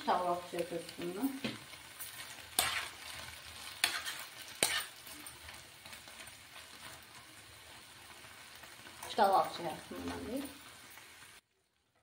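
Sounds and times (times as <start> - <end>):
metal spoon clinking on pan: 3.7 - 5.6.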